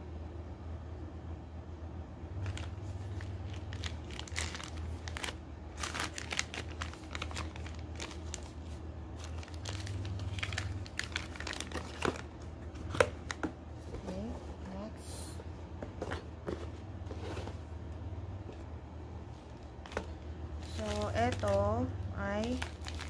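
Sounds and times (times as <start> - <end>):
plastic packaging crinkling: 2.4 - 13.4, 19.4 - 23.0.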